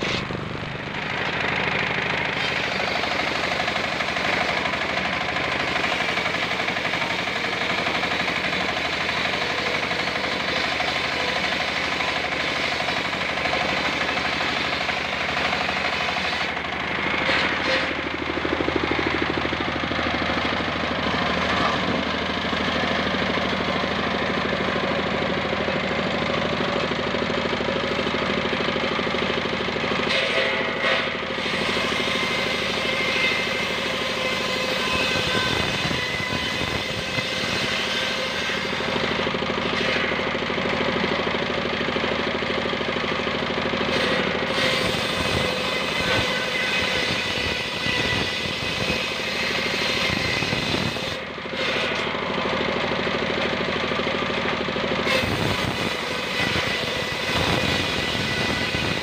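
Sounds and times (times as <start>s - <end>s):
saw blade cutting wood: 0.0s - 59.0s
stationary engine running: 0.0s - 59.0s.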